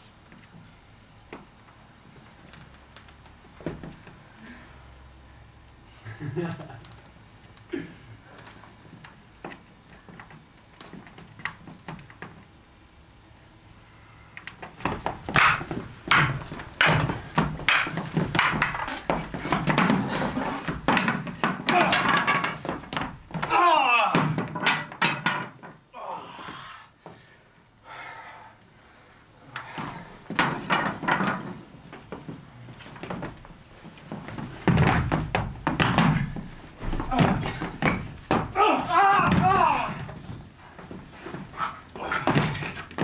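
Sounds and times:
wooden staffs clacking: 0:14.8 - 0:23.6
heavy thud: 0:34.4 - 0:40.5.

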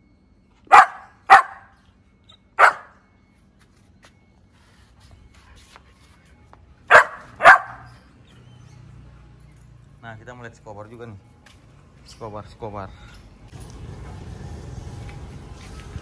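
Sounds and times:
dog barking: 0:00.7 - 0:01.8, 0:02.6 - 0:03.0, 0:06.9 - 0:08.0.

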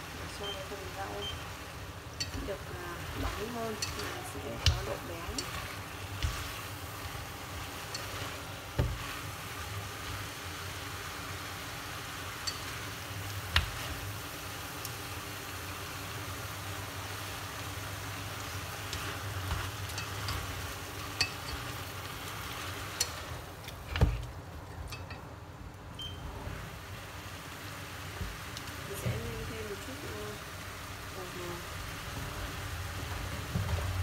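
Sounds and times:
food sizzling in a pot: 0:00.0 - 0:34.0
chopsticks knocking a pot: 0:03.3 - 0:05.6.

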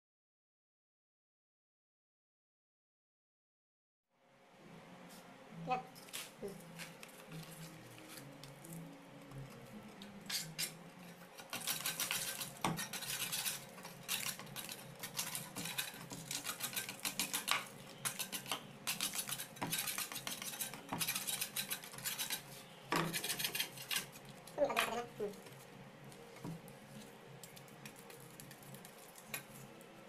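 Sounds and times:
metal blade scraping cement: 0:11.4 - 0:24.2.

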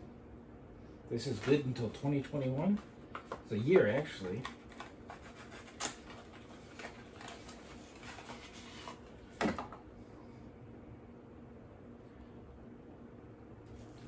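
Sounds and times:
cardboard and plastic rustling: 0:01.2 - 0:09.8.

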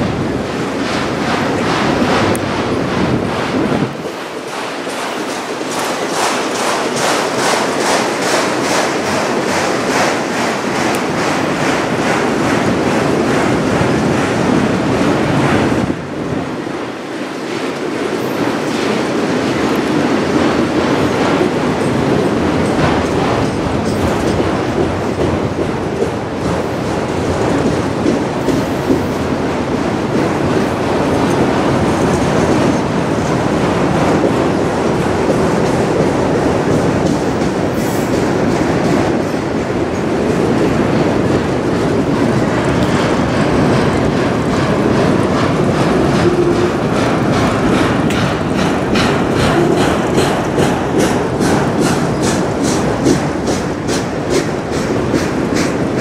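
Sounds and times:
freight train rumbling past: 0:00.0 - 0:56.0
wheels clicking over rail joints: 0:00.1 - 0:56.0.

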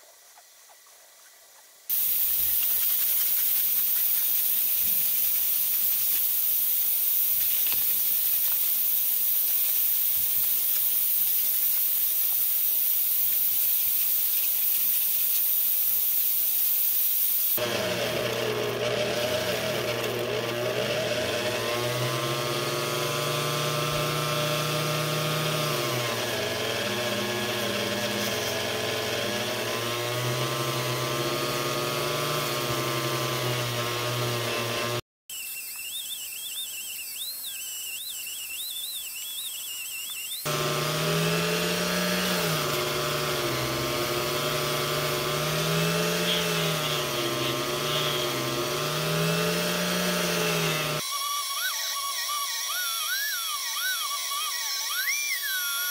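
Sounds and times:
steady hiss: 0:01.9 - 0:17.6
rotary tool whining: 0:17.6 - 0:55.9.

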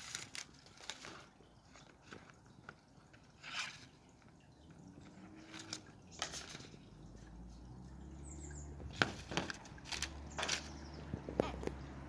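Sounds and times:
cardboard box clicks and rustles: 0:08.9 - 0:11.8.

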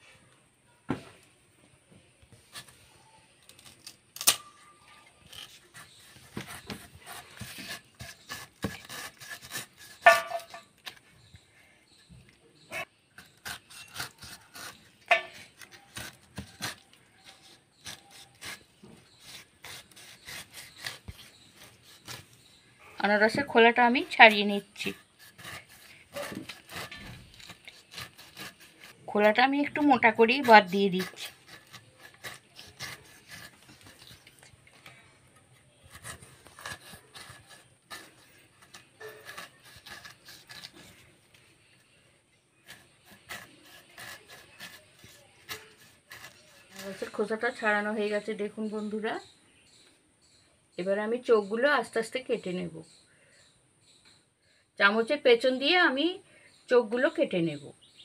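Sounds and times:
blade rasping through pineapple rind: 0:05.2 - 0:11.4, 0:12.6 - 0:42.0, 0:42.6 - 0:47.8.

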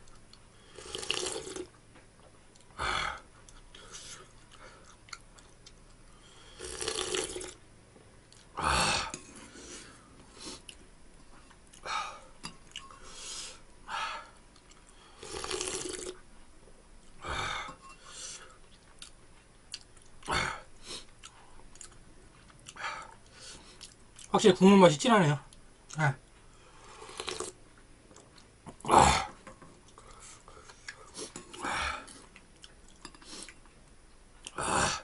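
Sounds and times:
person slurping broth: 0:00.6 - 0:01.7, 0:06.5 - 0:07.6, 0:15.2 - 0:16.2, 0:26.8 - 0:27.6.

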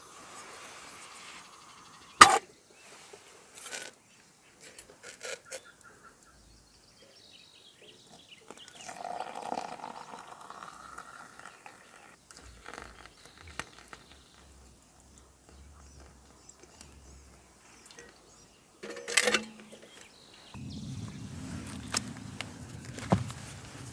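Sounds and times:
metal cookware clicking: 0:18.8 - 0:19.8.

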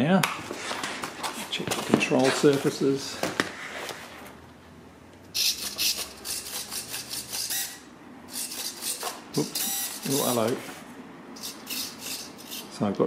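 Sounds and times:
servos buzzing in bursts: 0:05.3 - 0:10.6, 0:11.3 - 0:12.8.

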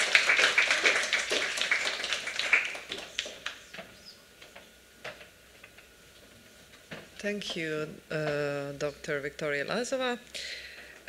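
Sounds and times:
audience applause: 0:00.0 - 0:03.6.

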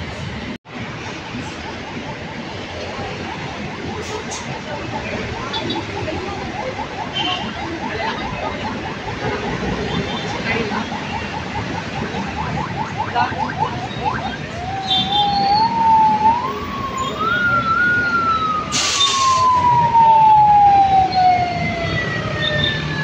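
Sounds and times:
road traffic: 0:00.0 - 0:23.0
ambulance siren: 0:00.7 - 0:23.0
hiss burst: 0:18.7 - 0:19.5.

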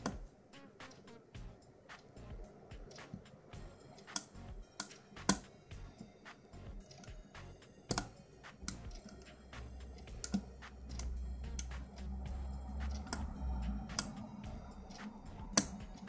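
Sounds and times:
low steady hum: 0:00.0 - 0:16.0
lock pick metallic clicking: 0:07.9 - 0:09.4.

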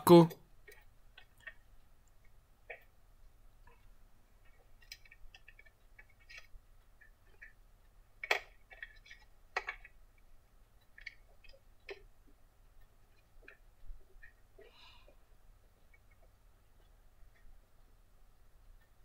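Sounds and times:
small tools clicking and tapping: 0:03.6 - 0:07.6, 0:08.2 - 0:10.0.

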